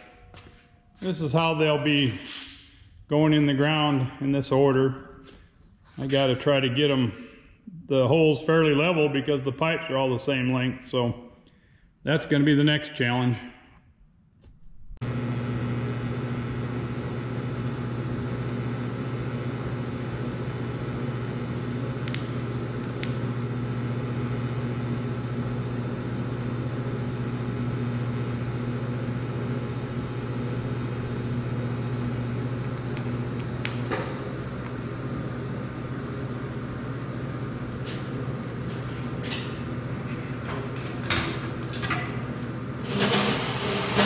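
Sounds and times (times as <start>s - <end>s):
welder electrical hum: 14.7s - 44.0s
welding arc buzz: 15.0s - 44.0s.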